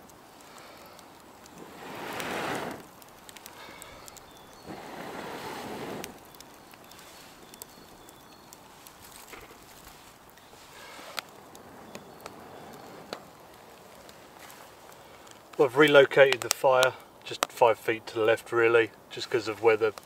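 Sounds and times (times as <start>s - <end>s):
kindling crackling and snapping: 0.0s - 20.0s
person blowing into fire: 0.3s - 7.6s.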